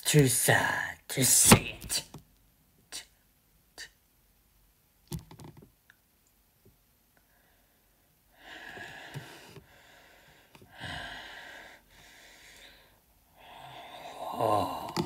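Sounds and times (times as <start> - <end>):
person breathing loudly: 7.3 - 15.0.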